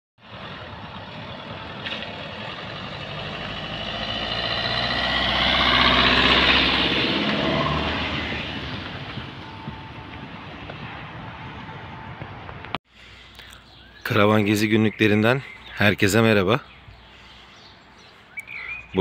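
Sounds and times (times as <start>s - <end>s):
car towing caravan driving past: 0.2s - 12.8s.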